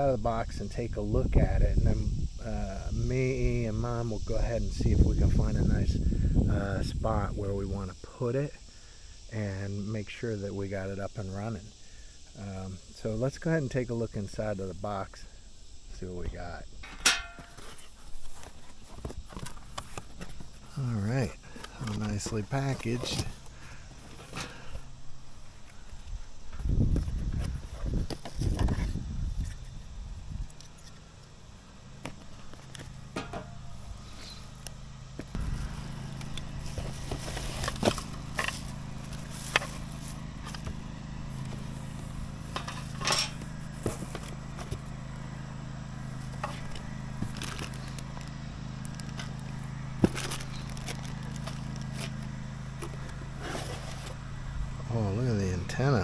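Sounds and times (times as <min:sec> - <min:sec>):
steady low hum: 0:00.0 - 0:56.0
cardboard and plastic packaging crackling: 0:35.3 - 0:42.6, 0:43.4 - 0:45.0, 0:46.1 - 0:54.2.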